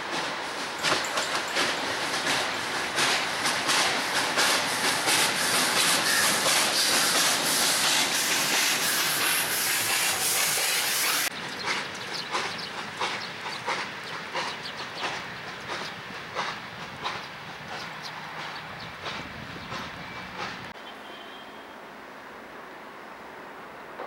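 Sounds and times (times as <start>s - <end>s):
steam hissing: 0.0s - 17.7s
steam locomotive chuffing: 0.0s - 20.8s.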